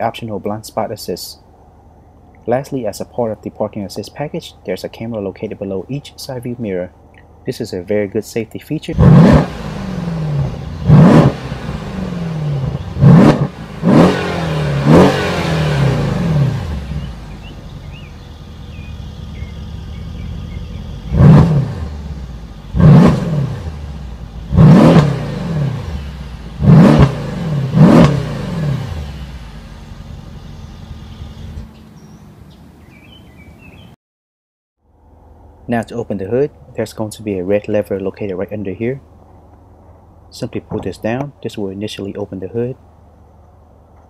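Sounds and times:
car engine idling: 0.0s - 32.6s, 34.8s - 44.0s
car engine revving: 8.9s - 32.1s.

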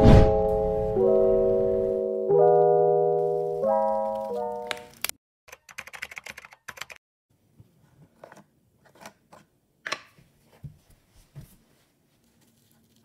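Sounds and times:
keyboard typing clicks: 3.8s - 7.0s.

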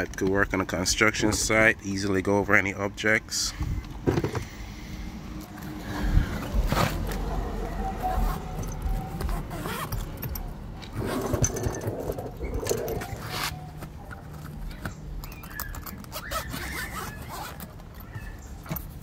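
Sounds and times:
nylon bag scraping and rustling: 6.5s - 10.0s, 10.8s - 13.8s, 16.0s - 17.7s
zipper being pulled: 7.8s - 13.8s, 15.8s - 17.8s.

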